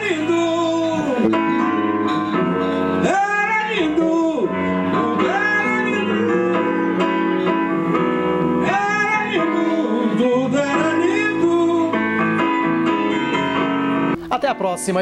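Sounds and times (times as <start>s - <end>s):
man singing soul music: 0.0s - 14.1s
instrumental backing: 0.0s - 15.0s.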